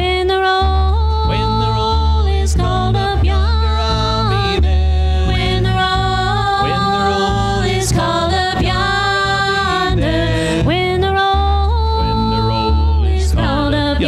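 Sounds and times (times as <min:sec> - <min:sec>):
acoustic guitars: 0:00.0 - 0:14.0
upright double bass: 0:00.0 - 0:14.0
group singing a hymn: 0:01.4 - 0:11.3.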